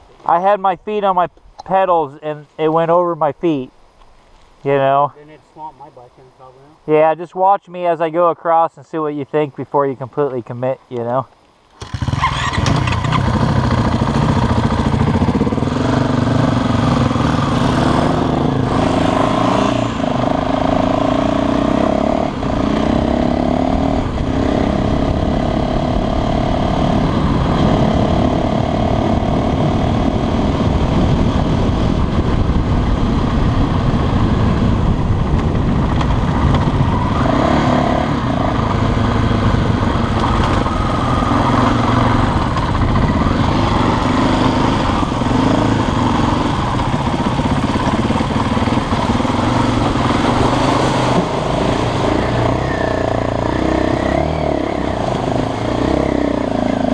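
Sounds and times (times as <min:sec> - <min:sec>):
dirt bike engine revving: 0:11.8 - 0:32.1, 0:35.5 - 0:56.9.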